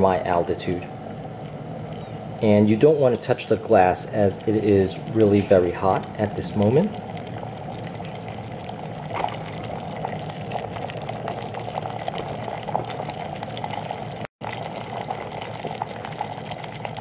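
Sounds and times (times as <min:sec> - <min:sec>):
water boiling in kettle: 0:00.0 - 0:17.0.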